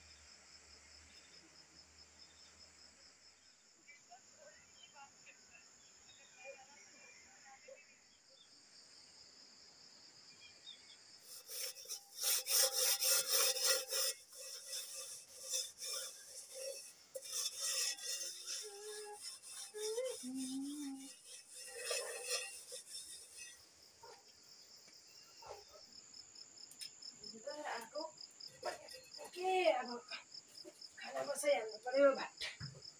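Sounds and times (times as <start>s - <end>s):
high insect drone: 8.4s - 32.2s
hand rubbing and scraping object: 11.2s - 24.4s, 28.4s - 29.6s.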